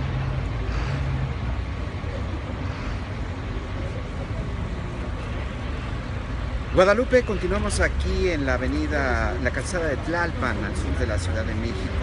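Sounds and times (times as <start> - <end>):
low engine drone: 0.0 - 6.6
street traffic rumble: 0.0 - 12.0.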